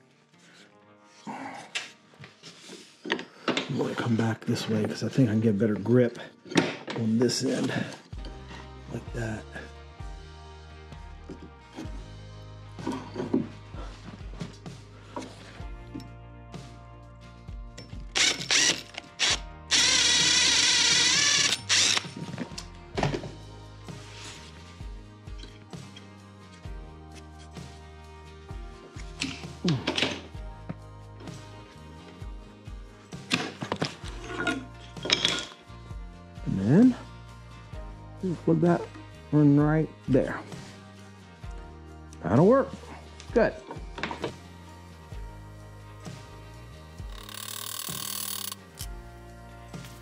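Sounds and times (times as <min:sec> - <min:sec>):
cordless drill boring wood: 0:18.1 - 0:22.1, 0:47.0 - 0:48.9.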